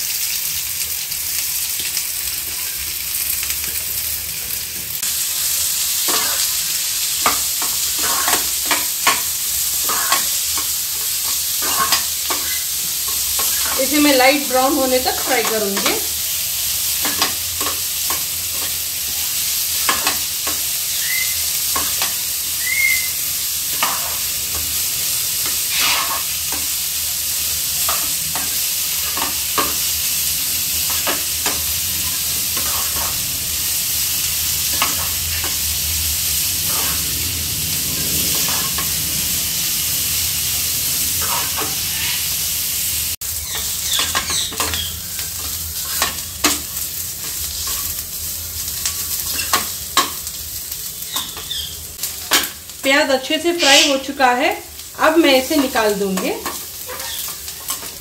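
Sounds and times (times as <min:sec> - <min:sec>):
onions sizzling in hot oil: 0:00.0 - 0:58.0
metal spatula scraping a pan: 0:06.0 - 0:16.1, 0:23.6 - 0:24.8, 0:25.4 - 0:26.8, 0:30.6 - 0:33.2, 0:36.4 - 0:37.2, 0:38.2 - 0:39.0, 0:41.1 - 0:42.3, 0:53.5 - 0:54.1, 0:55.6 - 0:58.0.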